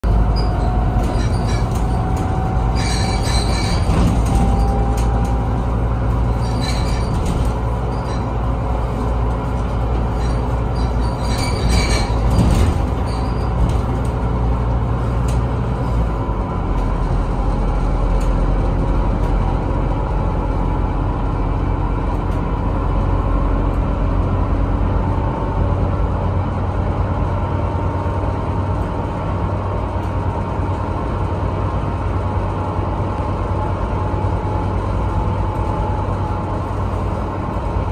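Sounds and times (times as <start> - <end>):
bus engine drone: 0.0 - 37.9
short high-pitched squeaks: 0.2 - 5.3, 6.2 - 8.4, 10.0 - 13.8.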